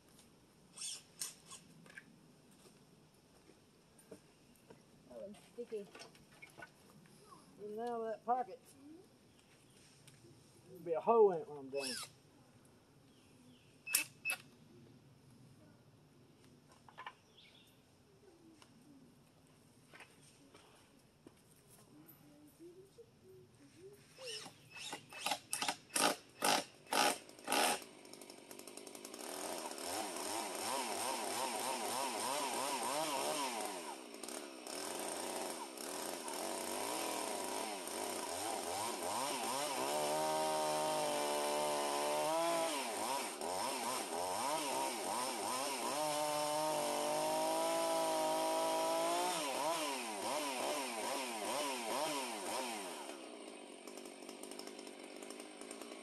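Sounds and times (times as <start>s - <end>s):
chainsaw cutting wood: 11.8s - 12.1s, 24.2s - 56.0s.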